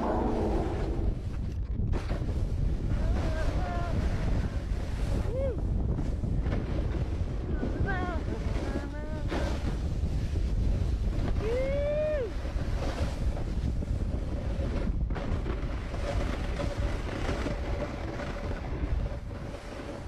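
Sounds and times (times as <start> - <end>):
wind rushing over microphone: 0.0 - 20.0.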